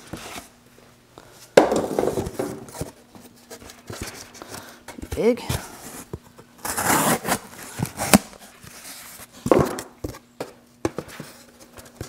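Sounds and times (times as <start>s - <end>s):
cardboard rustling and scraping: 1.8s - 10.2s.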